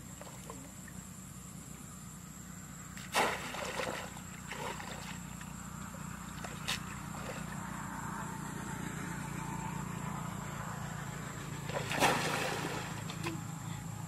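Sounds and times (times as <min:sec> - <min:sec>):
steady low hum: 0:00.0 - 0:14.0
water splashing: 0:03.0 - 0:05.5, 0:11.7 - 0:13.4.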